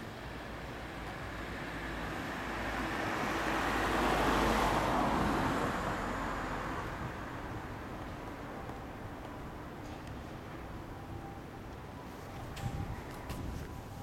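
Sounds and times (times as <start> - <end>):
road vehicle passing by: 0.0 - 14.0.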